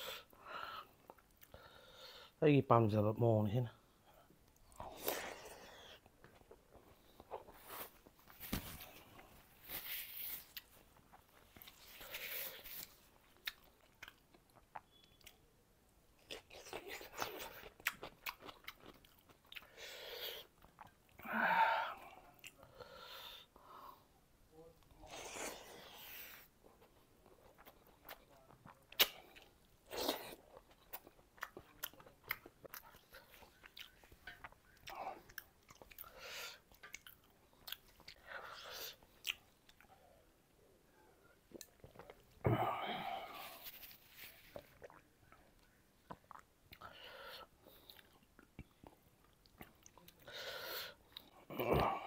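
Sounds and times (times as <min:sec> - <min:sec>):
person crunching cucumber: 0:16.2 - 0:19.7
wet chewing: 0:16.2 - 0:21.1.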